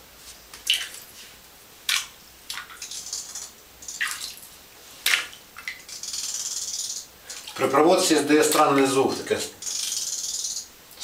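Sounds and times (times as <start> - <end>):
water splashing in bathtub: 0.6 - 1.1, 1.9 - 6.0, 7.3 - 9.0.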